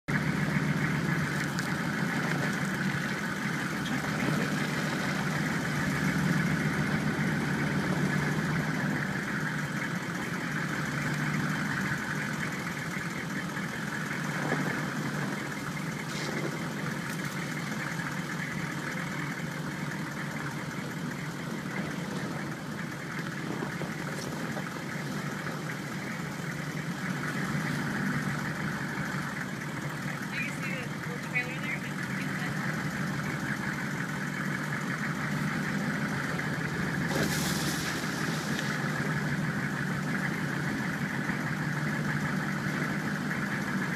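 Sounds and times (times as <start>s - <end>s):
vehicle engine running: 0.0s - 43.9s.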